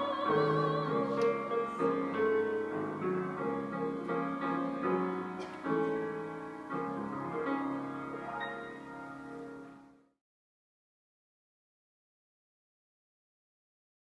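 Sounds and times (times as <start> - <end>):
soft piano chords: 0.0 - 10.1.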